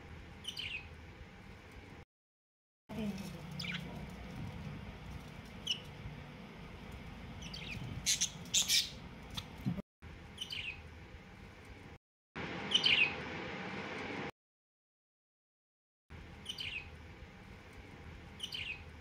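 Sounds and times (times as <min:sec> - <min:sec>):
budgerigar chirping: 0:07.4 - 0:09.5, 0:18.4 - 0:18.8.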